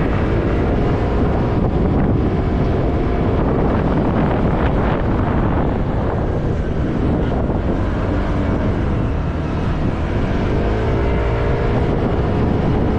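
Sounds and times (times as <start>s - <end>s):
motorcycle engine rumble: 0.0s - 12.9s
wind buffeting microphone: 0.0s - 12.9s.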